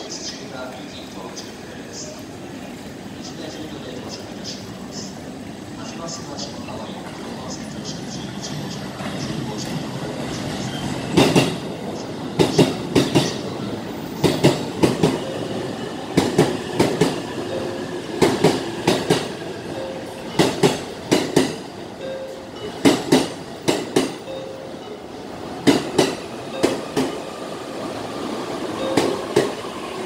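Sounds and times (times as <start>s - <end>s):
steady train rumble: 0.0s - 30.0s
train wheels clacking over rail joints: 10.6s - 19.4s, 20.2s - 21.7s, 22.6s - 24.4s, 25.6s - 27.3s, 28.8s - 29.7s.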